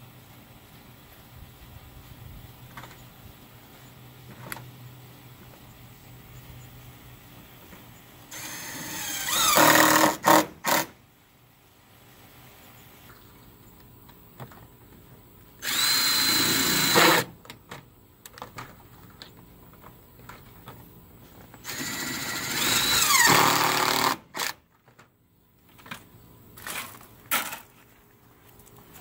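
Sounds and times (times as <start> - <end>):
cordless drill whining: 8.3 - 10.8, 15.6 - 17.3, 21.6 - 24.5.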